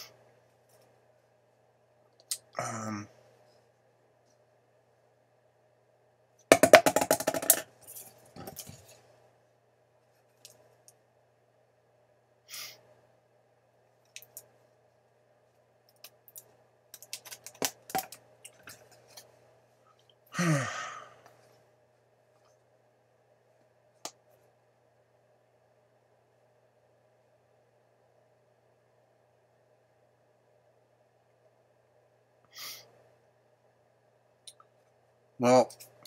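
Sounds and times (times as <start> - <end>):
faint steady hum: 0.0 - 36.0
person sighing: 2.6 - 3.1, 20.3 - 21.2.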